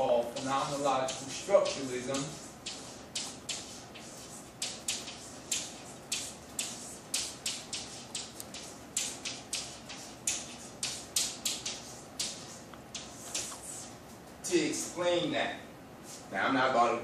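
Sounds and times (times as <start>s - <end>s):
chalk scratching on chalkboard: 0.4s - 14.0s.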